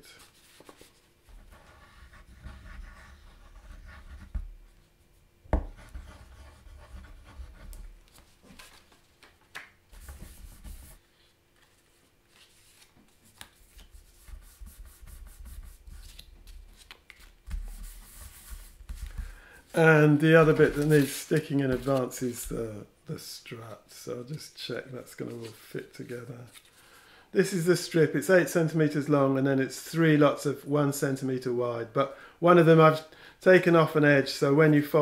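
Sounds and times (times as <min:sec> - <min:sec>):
card rubbing and rustling: 0:07.3 - 0:22.6.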